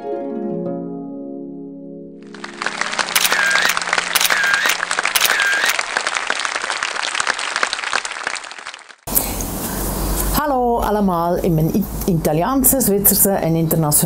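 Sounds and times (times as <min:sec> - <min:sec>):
crowd applauding: 0:02.2 - 0:09.1.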